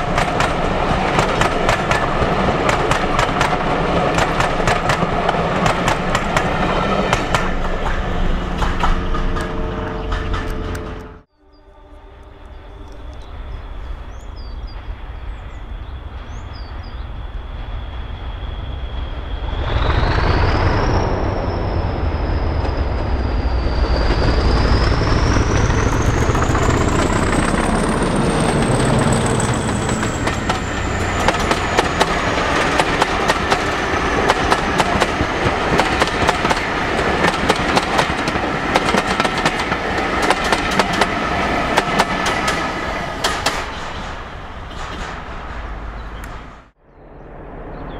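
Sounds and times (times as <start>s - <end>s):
wheels clacking over rail joints: 0.0s - 11.2s, 25.5s - 46.7s
diesel locomotive engine: 0.0s - 47.9s
turbocharger whistling whine: 15.6s - 32.9s.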